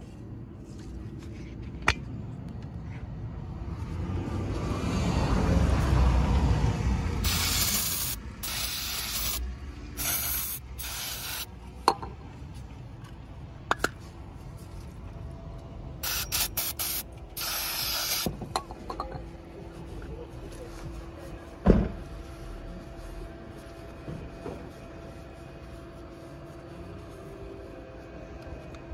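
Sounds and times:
aerosol spray hissing: 7.2 - 9.4, 10.0 - 11.5, 16.0 - 18.3.

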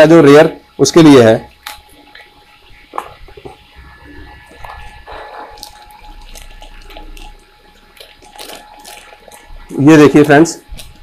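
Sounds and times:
plastic packet rustling: 4.4 - 11.0.

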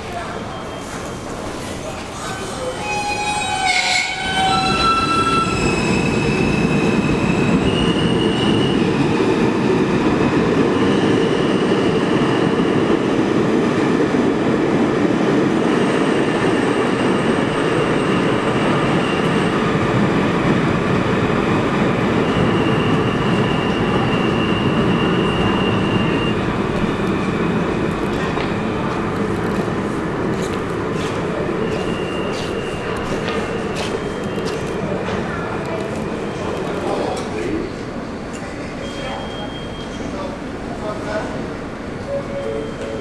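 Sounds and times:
train wheels rumbling on rail: 0.3 - 43.0
high-pitched wheel squeal: 2.5 - 8.9.

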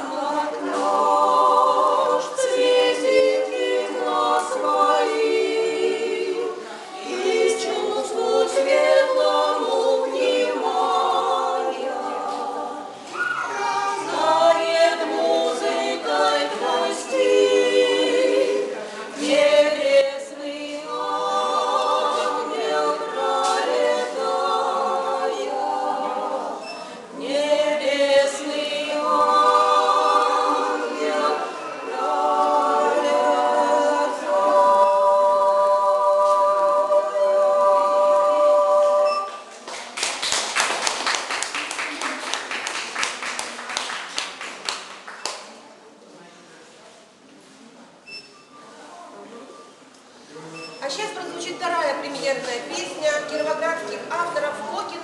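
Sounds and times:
women singing in harmony: 0.0 - 39.6.

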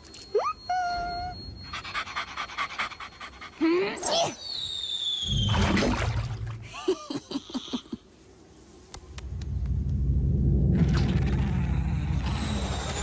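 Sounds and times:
cartoon falling whistle: 4.0 - 6.2
low rumble: 5.3 - 6.8, 9.0 - 13.0.

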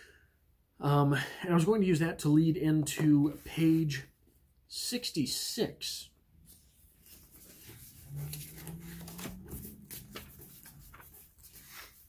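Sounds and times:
book pages rustling: 6.4 - 12.0.

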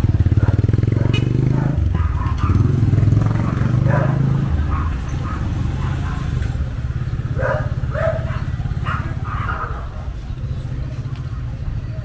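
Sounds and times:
small motorcycle engine running: 0.0 - 11.4
dog barking: 0.3 - 6.5, 7.3 - 10.1.

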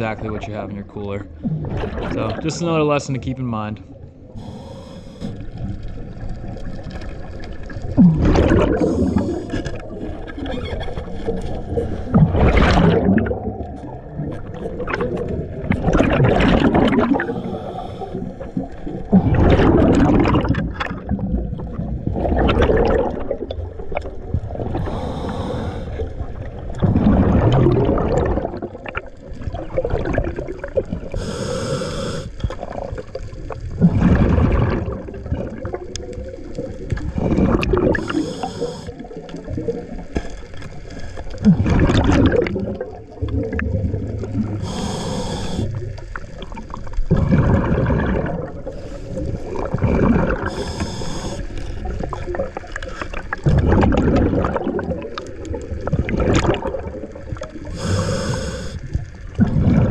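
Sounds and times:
exhaled bubbles gurgling: 0.0 - 59.9
regulator hiss on inhale: 4.4 - 5.5, 8.8 - 9.7, 17.2 - 18.8, 24.8 - 26.1, 31.1 - 32.5, 37.9 - 39.0, 44.6 - 45.8, 48.7 - 49.4, 50.4 - 51.7, 57.7 - 59.0.

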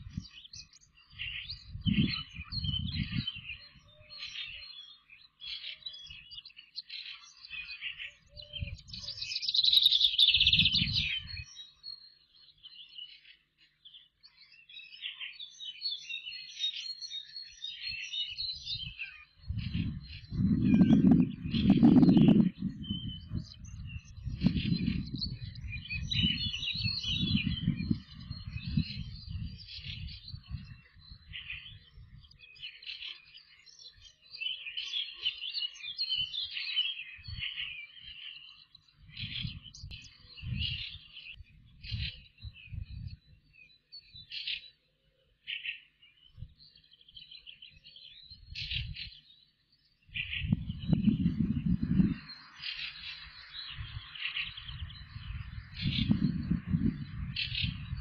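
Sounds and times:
wind rumble on microphone: 0.0 - 4.8, 8.2 - 11.6, 18.4 - 33.0, 36.0 - 38.3, 38.9 - 44.5, 46.2 - 47.4, 48.0 - 49.3, 50.1 - 58.0
bird trill: 0.0 - 58.0
small birds chirping: 0.0 - 58.0.

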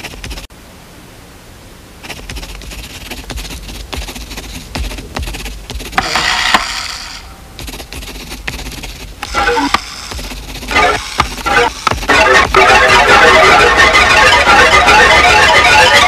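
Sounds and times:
pencil scratching on paper: 0.0 - 0.5, 2.0 - 13.8.

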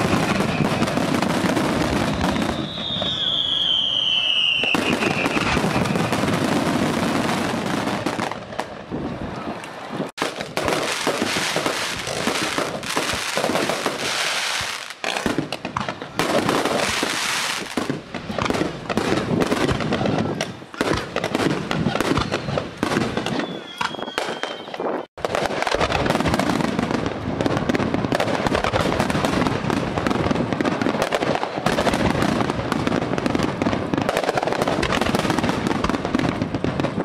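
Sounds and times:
falling firework whistle: 0.0 - 8.0, 21.8 - 25.1
fireworks bursting and crackling: 0.0 - 37.0.

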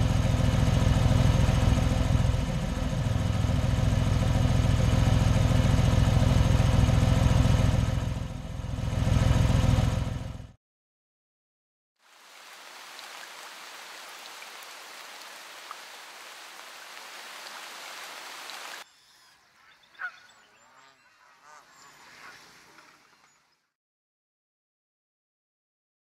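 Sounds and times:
vehicle engine idling: 0.0 - 10.6.

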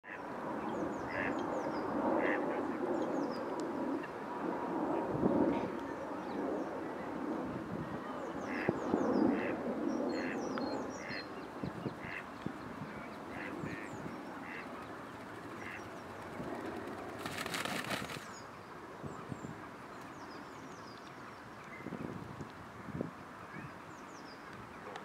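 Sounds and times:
steady outdoor rush: 7.1 - 20.9
small birds chirping: 8.2 - 18.7
ducks quacking: 12.0 - 12.3, 13.0 - 14.7, 15.6 - 15.9.

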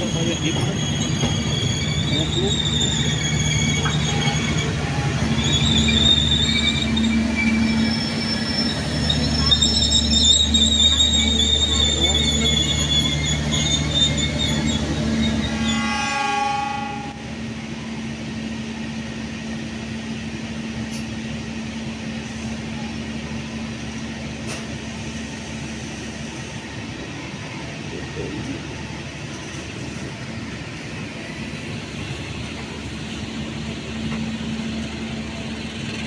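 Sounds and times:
train coaches rolling on rails: 0.0 - 16.9, 19.6 - 36.0
high wheel squeal: 0.0 - 17.2
train horn blast: 15.4 - 17.4.

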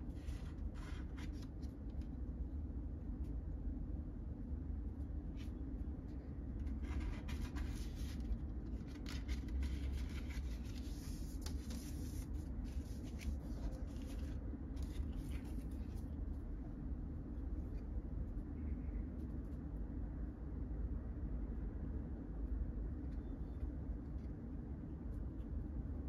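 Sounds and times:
steady low hum: 0.0 - 26.0
paper and cards rustling: 0.1 - 2.1, 6.6 - 16.1.

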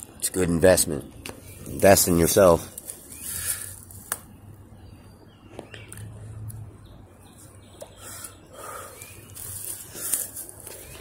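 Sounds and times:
rustling in undergrowth: 1.4 - 4.2, 8.1 - 11.0
twigs snapping underfoot: 2.7 - 4.3.

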